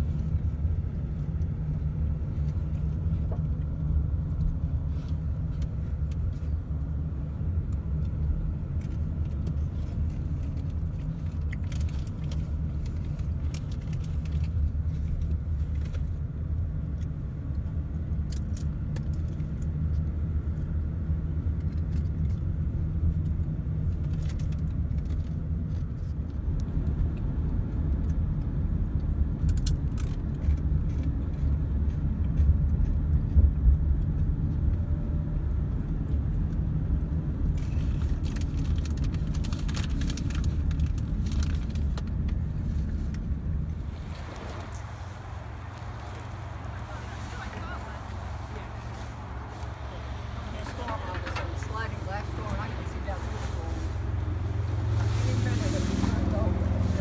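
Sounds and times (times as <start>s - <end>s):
car engine and tyre rumble: 0.0s - 57.0s
small clicks and rattles: 7.7s - 16.2s, 21.5s - 27.3s, 37.4s - 43.2s.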